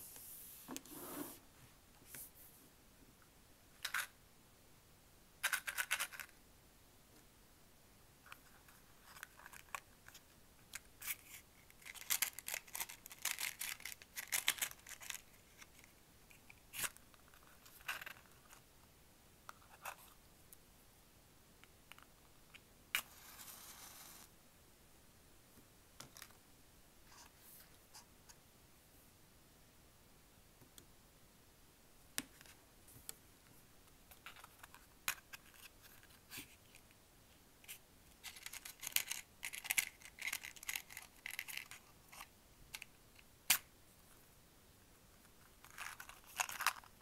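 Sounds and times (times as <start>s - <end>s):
matchbox scrapes and rattles: 11.0s - 15.9s, 38.2s - 42.3s, 45.6s - 46.9s.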